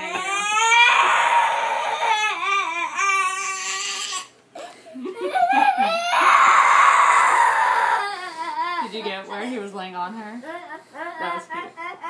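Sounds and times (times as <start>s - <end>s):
girl crying loudly: 0.0s - 4.3s, 5.2s - 9.4s, 10.4s - 12.0s.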